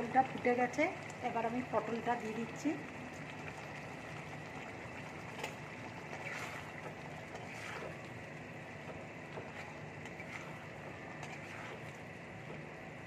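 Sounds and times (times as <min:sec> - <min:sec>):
gravy boiling in a pan: 0:00.0 - 0:13.0
metal spatula scraping pan: 0:06.2 - 0:06.8, 0:07.4 - 0:08.0, 0:09.5 - 0:11.9.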